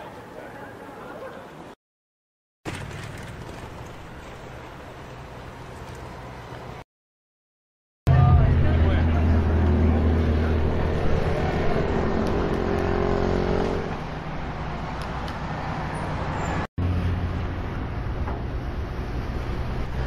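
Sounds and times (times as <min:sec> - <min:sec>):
street noise: 0:00.0 - 0:01.8, 0:08.1 - 0:20.0
vehicle engine humming: 0:08.1 - 0:20.0.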